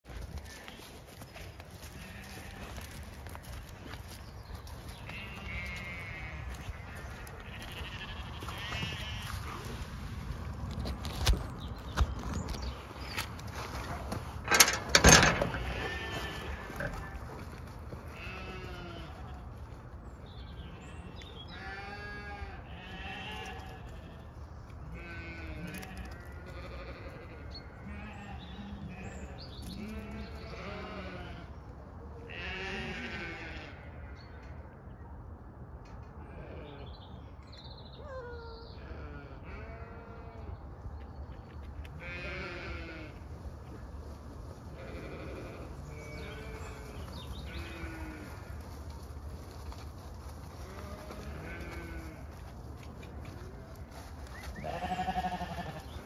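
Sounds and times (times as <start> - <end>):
sheep and lambs bleating: 1.8 - 4.0, 4.9 - 9.8, 14.5 - 19.5, 20.6 - 31.6, 32.2 - 34.3, 36.2 - 36.9, 38.0 - 40.5, 41.9 - 43.3, 44.7 - 48.6, 50.6 - 52.4, 54.5 - 56.0
metal gate clanking: 14.4 - 16.4.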